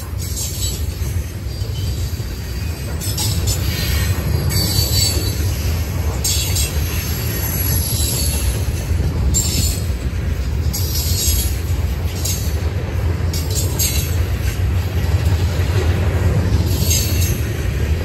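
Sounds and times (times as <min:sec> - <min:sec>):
train wheels rumbling on rails: 0:00.0 - 0:18.0.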